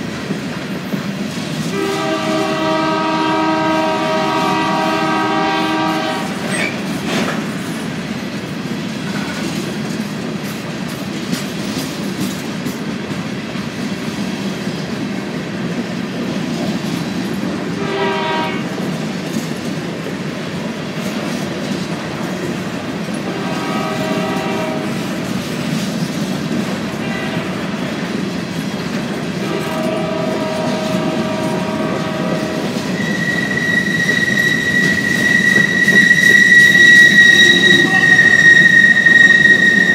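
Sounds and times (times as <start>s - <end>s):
train wheels rumbling and clattering: 0.0s - 39.9s
train horn chords: 1.7s - 6.5s, 17.8s - 18.8s, 23.2s - 25.1s, 26.9s - 27.8s, 29.4s - 34.4s, 35.1s - 39.9s
high wheel squeal: 32.7s - 39.9s.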